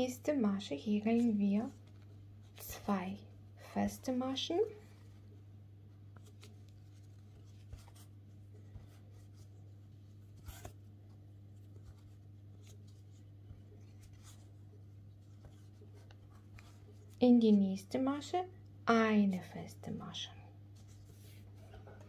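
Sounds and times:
crochet hook rustling yarn: 0:03.8 - 0:17.8.

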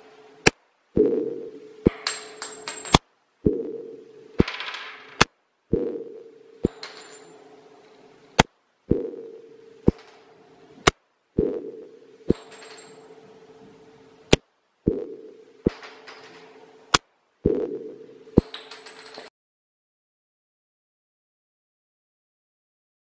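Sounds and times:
metallic pings of ejected casings: 0:01.9 - 0:03.0, 0:06.6 - 0:08.0, 0:12.3 - 0:13.5, 0:18.4 - 0:19.3.

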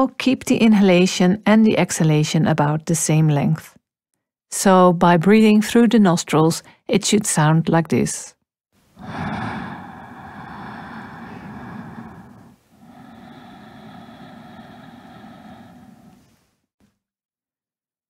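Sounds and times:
breath exhale: 0:09.0 - 0:16.6
rushing breath inhale: 0:09.0 - 0:16.6.

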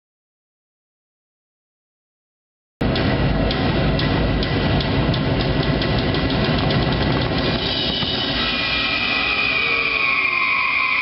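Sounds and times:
drums: 0:02.8 - 0:11.0.

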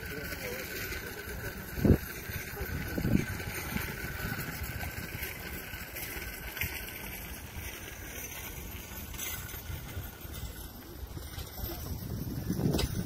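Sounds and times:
bicycle tyres rolling: 0:00.0 - 0:13.0
wind on microphone: 0:01.7 - 0:05.8, 0:11.1 - 0:13.0.

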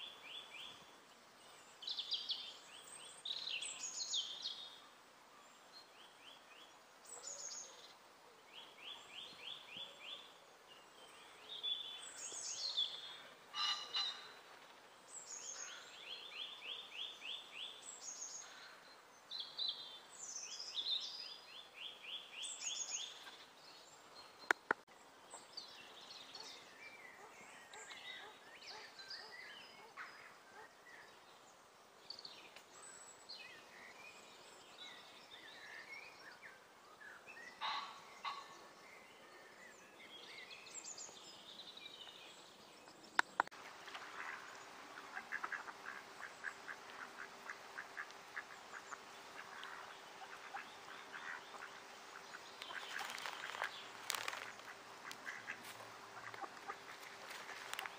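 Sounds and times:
songbirds singing: 0:00.0 - 0:57.9
sharp clicks: 0:43.2 - 0:43.5.

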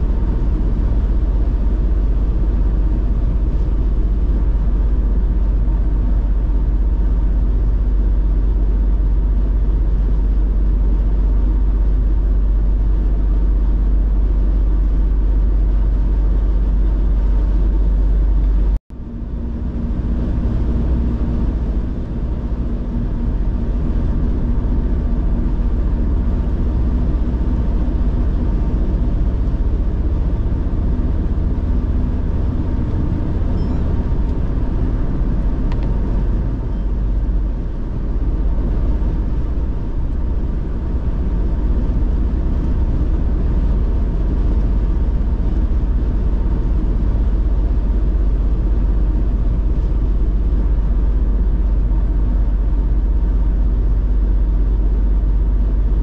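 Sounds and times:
car road noise: 0:00.0 - 0:54.0
faint steady hum: 0:00.0 - 0:56.0
heavy low rumble: 0:00.0 - 0:56.0.

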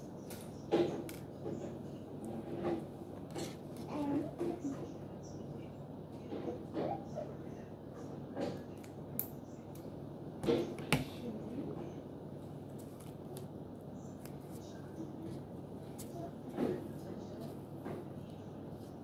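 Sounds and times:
low room hum: 0:00.0 - 0:19.0
scissors and paper clicks and rustles: 0:00.2 - 0:01.7.

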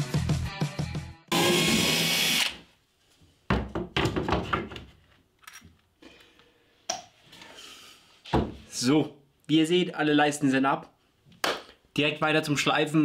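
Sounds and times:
cordless drill running: 0:01.3 - 0:02.6
wood knocking and clattering: 0:03.5 - 0:05.1, 0:08.3 - 0:08.6.

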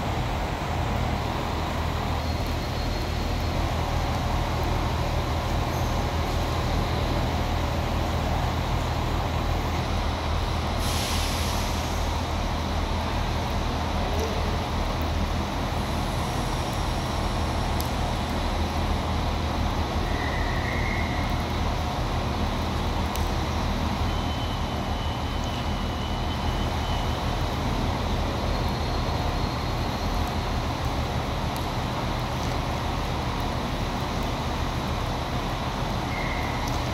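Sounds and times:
diesel engine rumbling: 0:00.0 - 0:36.9
hiss: 0:10.6 - 0:12.4, 0:15.8 - 0:17.8.

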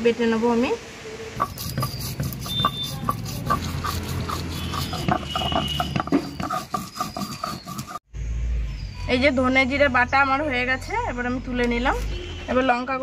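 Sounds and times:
stone rasping on stone: 0:01.4 - 0:08.0.

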